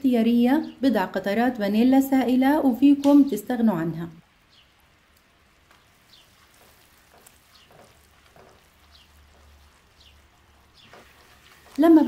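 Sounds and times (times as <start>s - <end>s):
syrup bubbling in a pan: 4.5s - 12.0s
spatula stirring: 5.6s - 12.0s.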